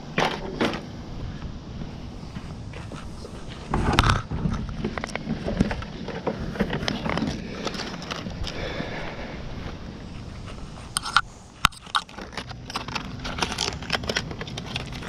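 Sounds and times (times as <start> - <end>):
footsteps on asphalt: 1.2 - 4.0
gear being handled: 10.4 - 15.0.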